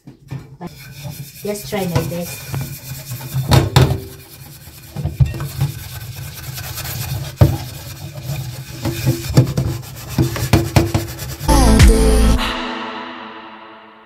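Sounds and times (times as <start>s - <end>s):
frying pan being scrubbed: 0.6s - 11.5s
pan knocking in sink: 3.4s - 4.2s, 8.8s - 11.2s.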